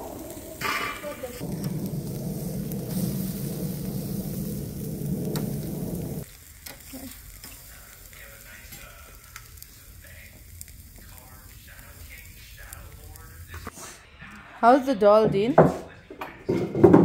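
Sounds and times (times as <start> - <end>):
steaks sizzling on a grill: 0.0 - 13.7
low rumble: 1.2 - 6.2.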